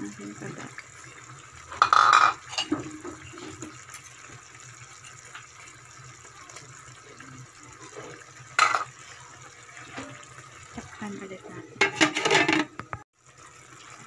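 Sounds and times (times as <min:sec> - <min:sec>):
sauce simmering: 0:00.0 - 0:11.4, 0:13.2 - 0:14.0
metal utensil scraping in a wok: 0:01.7 - 0:03.6, 0:11.8 - 0:12.7.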